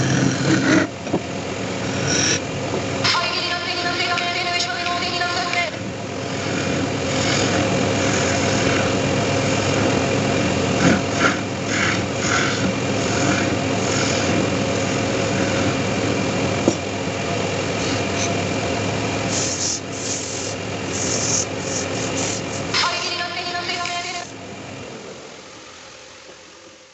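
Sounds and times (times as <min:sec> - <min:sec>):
chisel scraping spinning wood: 0:00.0 - 0:02.5, 0:05.5 - 0:22.8
wood lathe running: 0:00.0 - 0:02.9, 0:05.3 - 0:22.8.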